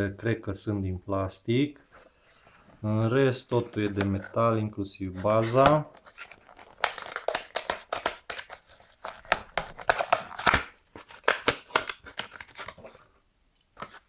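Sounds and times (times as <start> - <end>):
plastic blister pack crinkling: 5.4 - 13.0.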